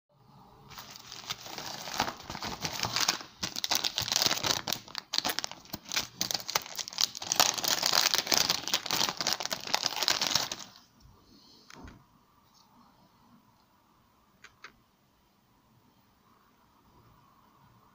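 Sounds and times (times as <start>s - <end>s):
plastic packaging crinkling: 0.7s - 10.8s.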